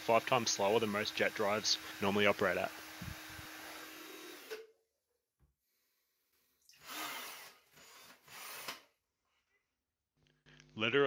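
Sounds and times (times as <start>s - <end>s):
cordless drill spinning: 0.1s - 4.6s, 6.6s - 8.9s.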